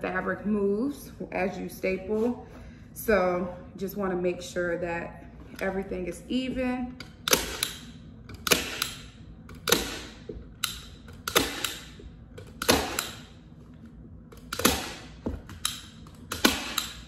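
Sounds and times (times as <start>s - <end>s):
staple gun firing: 7.2s - 7.8s, 8.4s - 11.9s, 12.6s - 13.2s, 14.4s - 17.0s.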